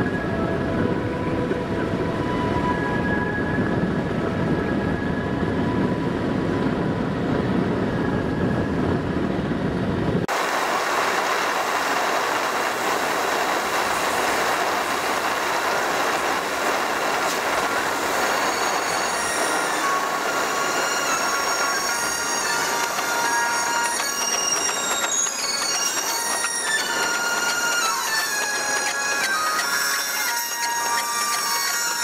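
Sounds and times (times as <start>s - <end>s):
road and tyre noise in car: 0.0s - 32.0s
faint high whining tones: 11.1s - 32.0s.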